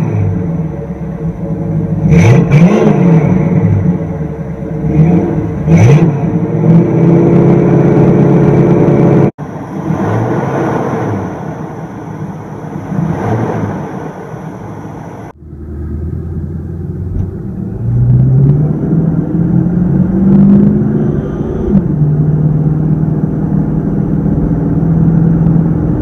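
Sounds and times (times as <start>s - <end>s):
car engine revving and idling: 0.0s - 26.0s.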